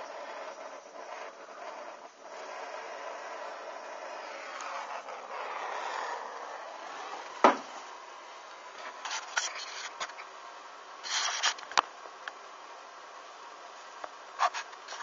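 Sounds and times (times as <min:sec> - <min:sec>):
burning crackles and rustles: 0:00.0 - 0:15.0
sharp pop: 0:07.4 - 0:07.7.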